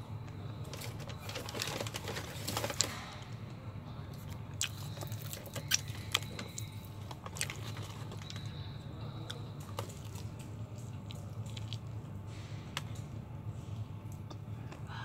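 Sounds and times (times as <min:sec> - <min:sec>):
plastic sachet handled: 0:00.7 - 0:03.0
chewing with mouth smacks: 0:04.2 - 0:08.6, 0:09.2 - 0:13.1.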